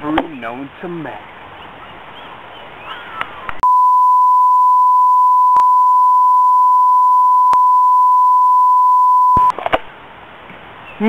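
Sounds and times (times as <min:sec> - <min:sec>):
steady electronic beep tone: 0:03.6 - 0:09.5.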